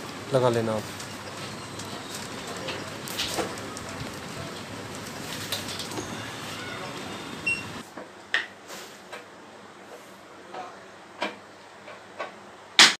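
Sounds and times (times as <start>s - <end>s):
extractor fan running: 0.0s - 7.8s
short beep from control panel: 7.4s - 7.8s.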